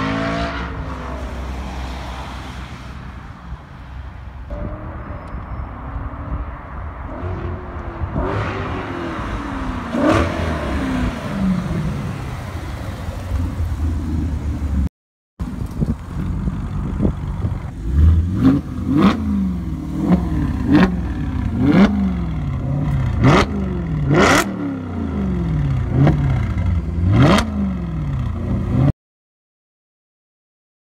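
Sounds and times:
car engine revving: 7.0 - 14.8, 17.7 - 28.9.

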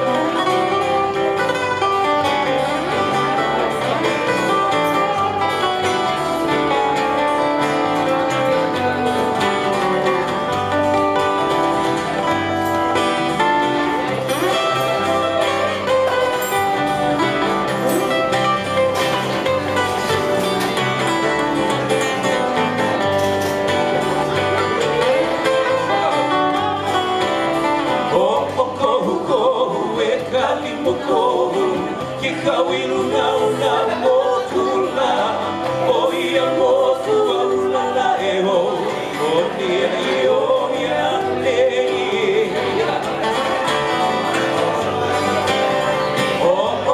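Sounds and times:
acoustic guitars and bass: 0.0 - 46.9
man singing: 24.8 - 46.9.

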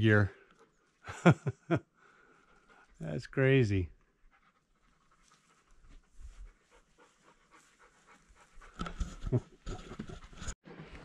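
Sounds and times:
quick panting breaths: 1.9 - 3.0, 4.2 - 9.7.

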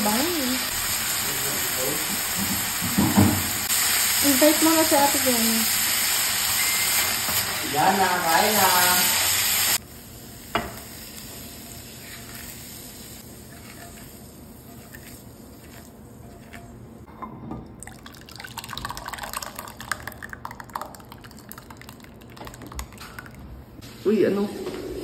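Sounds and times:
wok knocking: 2.1 - 3.6.

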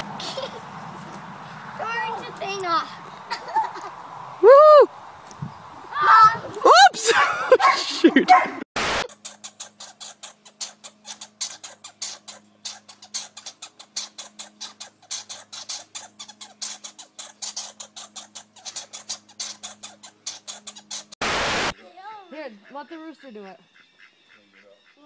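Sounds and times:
squirrels clicking and scratching: 9.1 - 21.2.

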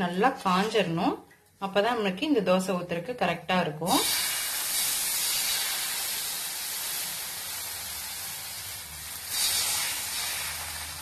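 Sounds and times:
batter hissing and sizzling on griddle: 4.0 - 11.0.

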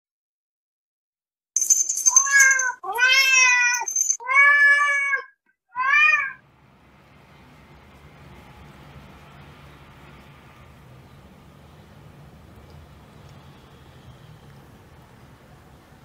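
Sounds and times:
cat meowing: 2.2 - 6.4.

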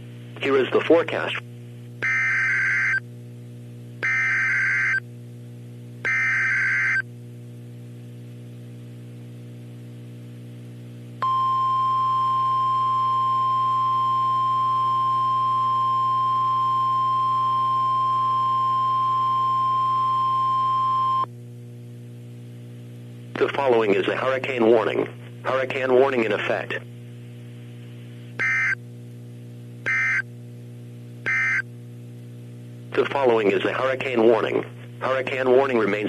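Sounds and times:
receiver low hum: 0.0 - 36.0
steady warning alarm tone: 2.0 - 3.0, 4.0 - 5.0, 6.1 - 7.0, 28.4 - 28.8, 29.9 - 30.3, 31.3 - 31.6.

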